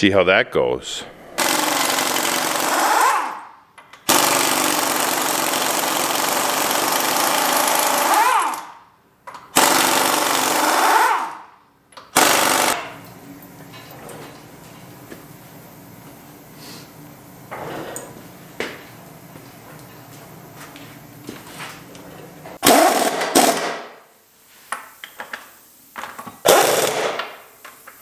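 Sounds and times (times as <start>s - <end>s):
pneumatic impact wrench hammering: 1.4s - 11.4s, 12.0s - 12.9s, 22.6s - 24.0s, 26.2s - 27.4s.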